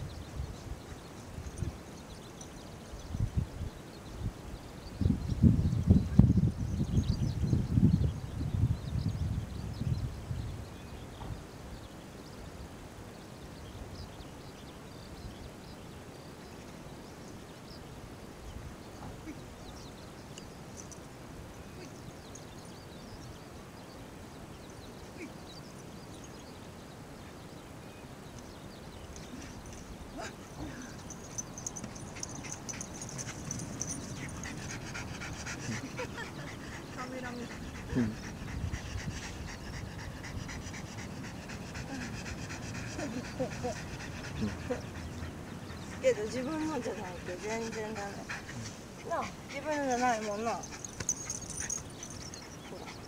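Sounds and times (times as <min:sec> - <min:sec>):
wind rumble on microphone: 0:00.0 - 0:15.6, 0:28.3 - 0:53.0
dog panting: 0:29.4 - 0:53.0.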